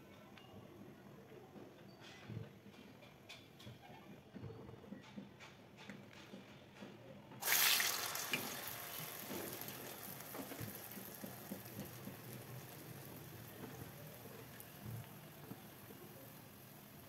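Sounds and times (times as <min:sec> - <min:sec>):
batter sizzling in hot oil: 0:07.4 - 0:17.0.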